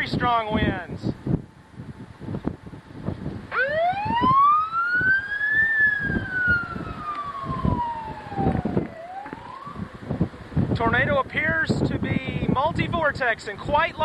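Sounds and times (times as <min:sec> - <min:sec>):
wind buffeting microphone: 0:00.0 - 0:14.0
warning siren wailing: 0:03.5 - 0:10.4.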